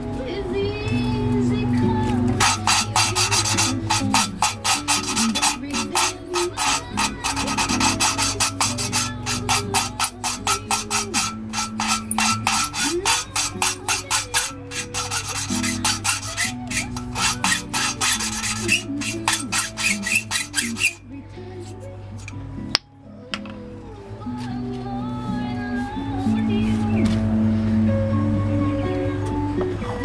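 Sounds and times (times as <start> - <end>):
valve lapping gritty rasp: 2.3 - 21.0.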